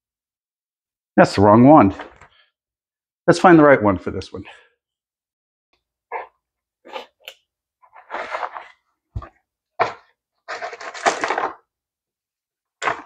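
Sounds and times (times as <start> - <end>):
small parts rattling in cardboard box: 10.5 - 11.6.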